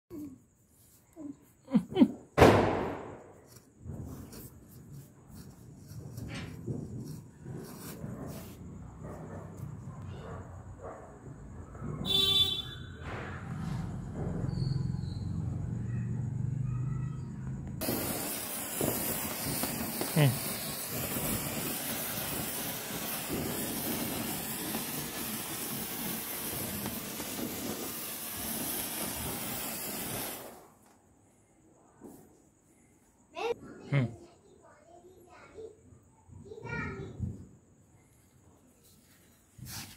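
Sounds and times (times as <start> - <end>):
sparkler fizzing and crackling: 1.8 - 9.8, 17.8 - 31.0
firecracker bang: 2.4 - 4.5, 5.9 - 8.9, 11.3 - 14.6, 17.8 - 30.7.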